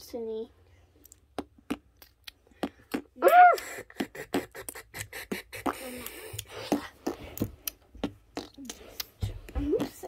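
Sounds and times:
child making mouth clicks and pops: 0:01.0 - 0:10.0
child squealing: 0:03.2 - 0:03.7.

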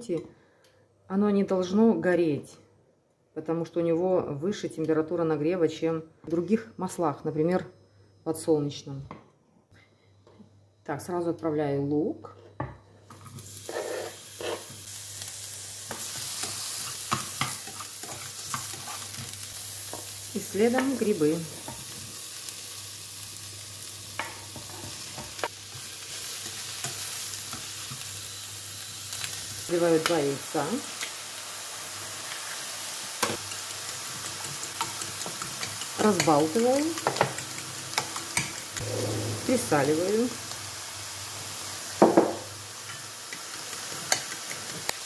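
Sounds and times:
onion sizzling in frying pan: 0:13.0 - 0:45.0
spatula scraping a pan: 0:13.6 - 0:14.8, 0:15.9 - 0:19.2
fork beating eggs in a bowl: 0:33.4 - 0:38.6.

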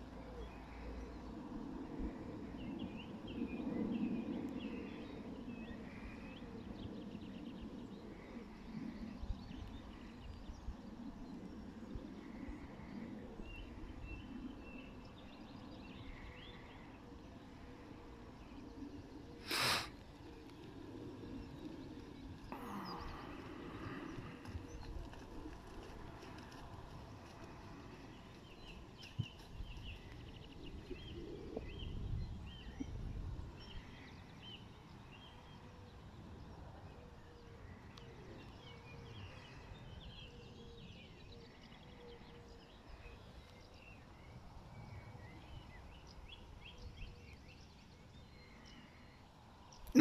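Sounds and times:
wind rumble on microphone: 0:00.0 - 0:49.8
small birds chirping: 0:18.2 - 0:26.6, 0:27.2 - 0:36.0, 0:36.9 - 0:50.0.

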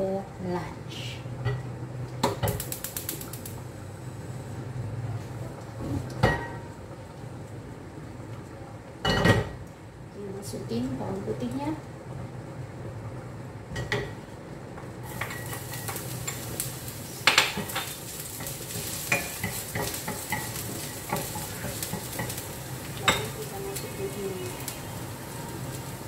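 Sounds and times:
garlic sizzling in hot oil: 0:02.2 - 0:04.5, 0:15.0 - 0:26.0.

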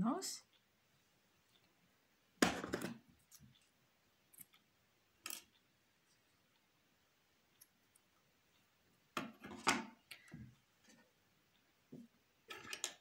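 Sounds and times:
knock and rustle on wooden table: 0:02.4 - 0:03.0.

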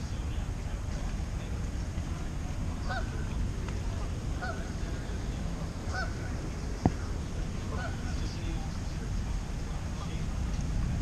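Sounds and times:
low rumble of wind: 0:00.0 - 0:11.0
geese honking: 0:02.8 - 0:03.2, 0:04.4 - 0:04.8, 0:05.9 - 0:06.4, 0:07.7 - 0:08.2.

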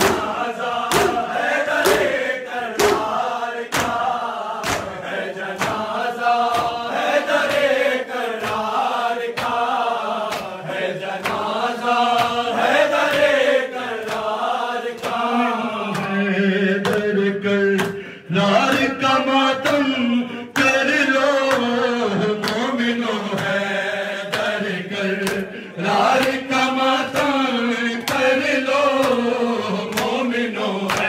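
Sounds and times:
hand slaps on chest: 0:00.0 - 0:02.2, 0:02.8 - 0:04.0, 0:04.6 - 0:05.0, 0:08.4 - 0:08.8, 0:12.1 - 0:12.4, 0:25.2 - 0:25.5
man chanting a lament: 0:14.6 - 0:31.0.

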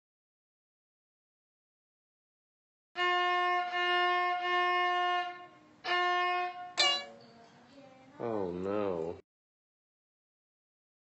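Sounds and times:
violin held note: 0:06.6 - 0:07.2.

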